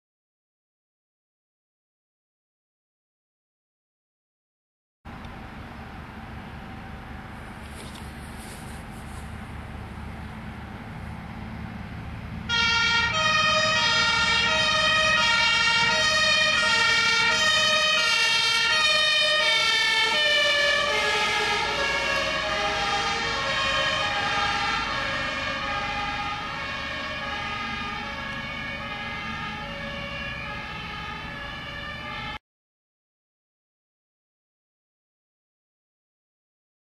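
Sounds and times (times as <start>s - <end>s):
fire engine rumble: 5.1s - 32.4s
two-tone siren: 12.5s - 32.4s.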